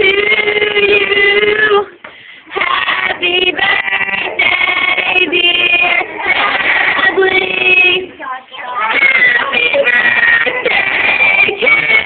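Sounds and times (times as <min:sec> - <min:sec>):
high-pitched singing: 0:02.5 - 0:12.0.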